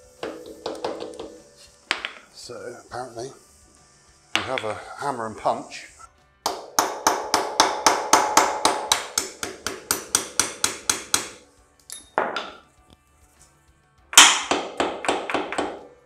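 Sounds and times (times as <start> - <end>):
hammer striking steel punch: 0.2 - 2.2, 6.5 - 12.6, 14.2 - 15.9.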